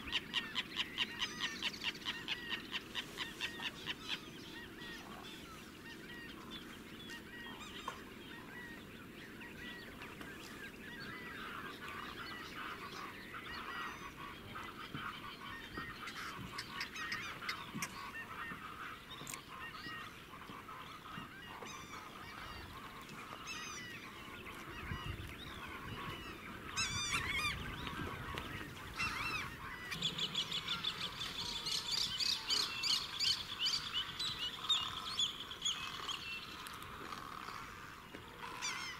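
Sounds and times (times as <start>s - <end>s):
honking bird calls: 0.0s - 38.9s
wetland birds calling: 0.0s - 38.9s
flock high-pitched calls: 11.0s - 38.9s.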